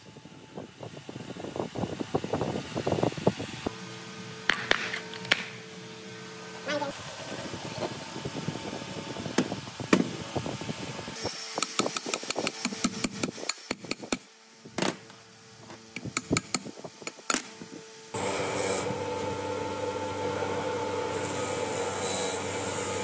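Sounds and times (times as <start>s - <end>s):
wire wheel scrubbing rust: 18.2s - 23.0s.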